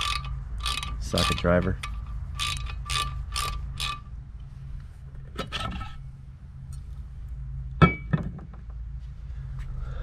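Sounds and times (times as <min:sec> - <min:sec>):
ratcheting socket driver clicking: 0:00.0 - 0:04.0
low steady hum: 0:00.0 - 0:10.0.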